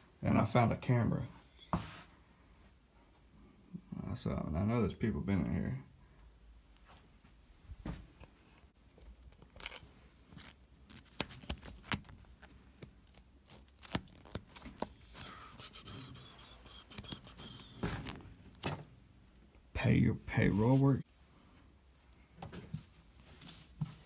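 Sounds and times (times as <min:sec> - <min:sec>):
paper folders rustling: 0:09.2 - 0:15.3, 0:16.0 - 0:19.0.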